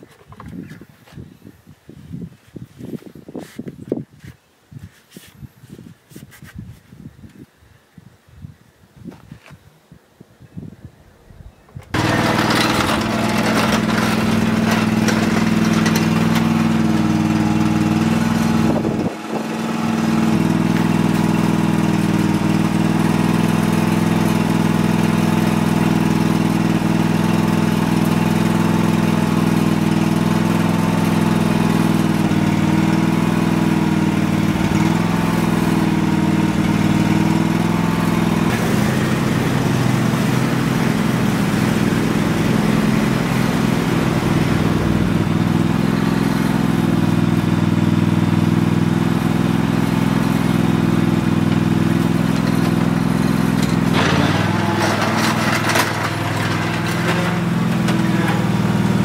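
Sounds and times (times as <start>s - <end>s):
riding lawn mower engine: 11.8s - 59.0s.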